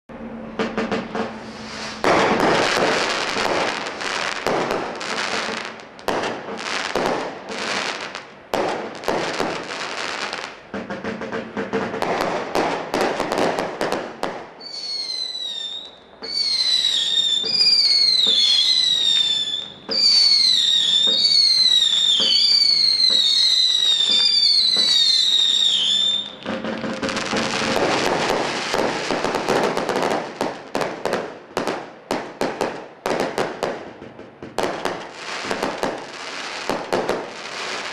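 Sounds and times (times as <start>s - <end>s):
firework shots and crackling bursts: 0.5s - 37.9s
shrill falling firework whistles: 1.3s - 5.8s, 14.6s - 30.2s.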